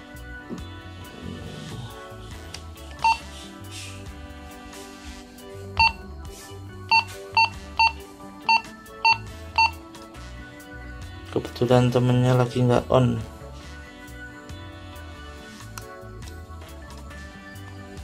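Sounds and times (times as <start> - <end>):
radio key beeps: 3.0 - 3.2, 6.9 - 9.8.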